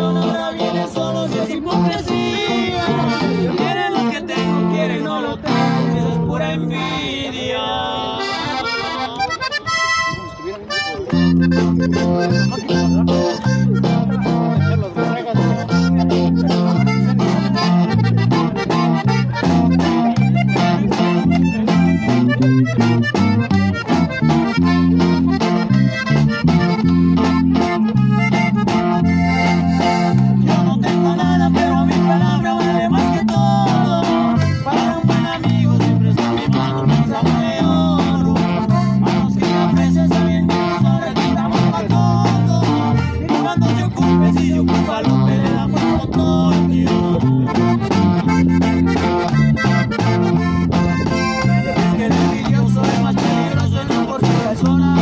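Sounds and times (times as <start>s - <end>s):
strummed acoustic guitar: 0.0s - 7.3s, 8.2s - 55.0s
person singing: 0.0s - 9.4s, 26.9s - 50.1s, 51.0s - 55.0s
accordion: 0.0s - 55.0s
bass guitar: 0.0s - 55.0s.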